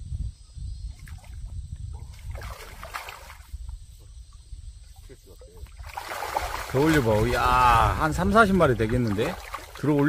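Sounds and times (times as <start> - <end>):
water splashing and dripping: 0.9 - 3.8, 4.9 - 10.0
fish thrashing in net: 5.8 - 7.5, 8.9 - 10.0.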